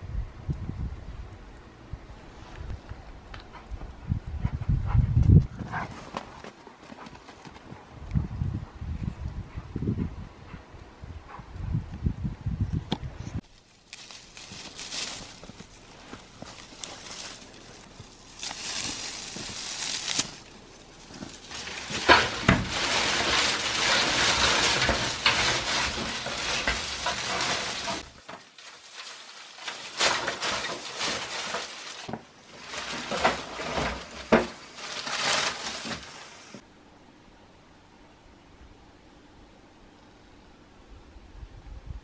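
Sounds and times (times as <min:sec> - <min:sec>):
dry branches rustling and crackling: 0:13.4 - 0:36.6
twigs snapping: 0:13.5 - 0:36.6.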